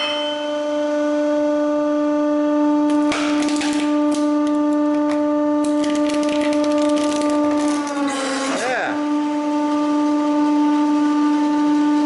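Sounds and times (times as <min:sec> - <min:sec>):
hydraulic press pump hum: 0:00.0 - 0:11.0.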